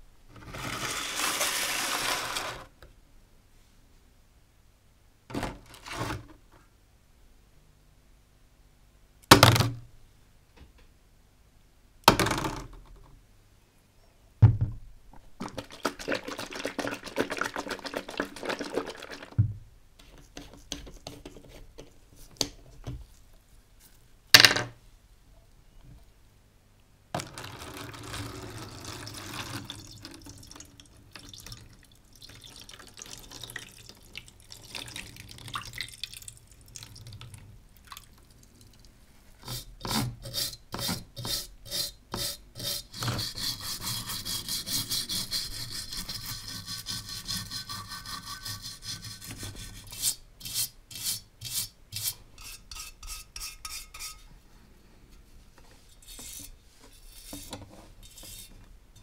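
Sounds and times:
liquid pouring into tray: 27.2 - 38.8
brush scrubbing metal: 39.4 - 54.2, 55.9 - 58.6.

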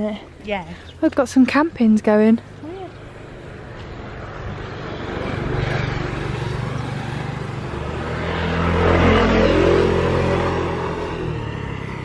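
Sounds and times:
motorbike engine passing by: 2.6 - 12.0.

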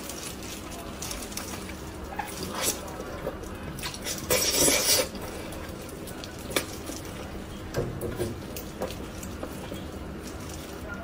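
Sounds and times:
mouth biting and chewing: 0.0 - 7.1.

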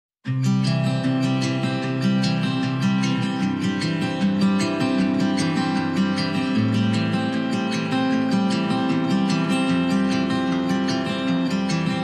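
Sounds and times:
strummed acoustic guitar music: 0.2 - 12.0.

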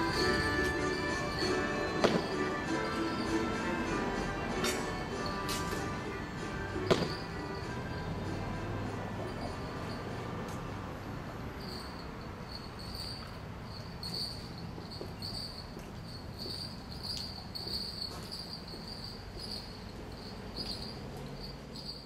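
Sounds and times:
insects trilling: 0.0 - 4.1, 11.3 - 22.0.

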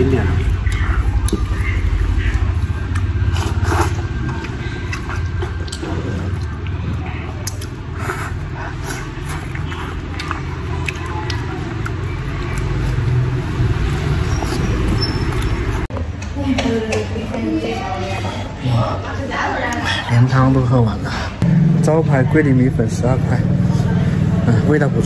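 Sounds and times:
man slurping and chewing noodles: 0.0 - 16.0.

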